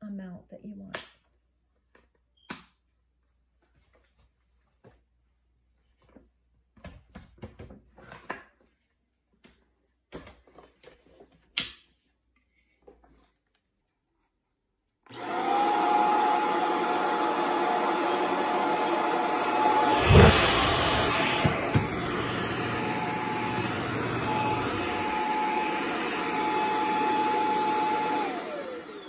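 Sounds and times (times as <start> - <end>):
vacuum motor whining: 15.1 - 29.0.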